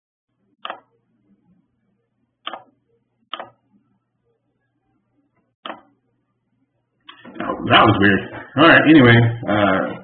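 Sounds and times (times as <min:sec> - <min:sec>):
faint low hum: 0:00.3 - 0:10.0
sharp clicks: 0:02.4 - 0:02.7, 0:03.3 - 0:03.6.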